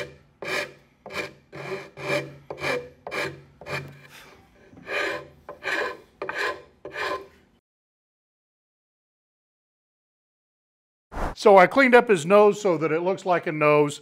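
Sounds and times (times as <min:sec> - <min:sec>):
rasp filing wood: 0:00.0 - 0:07.4.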